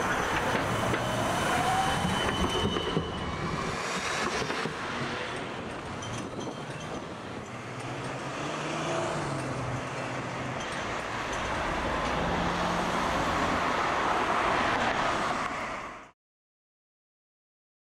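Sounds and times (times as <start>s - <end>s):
road vehicles passing: 0.0s - 16.1s
trams passing: 0.0s - 16.1s.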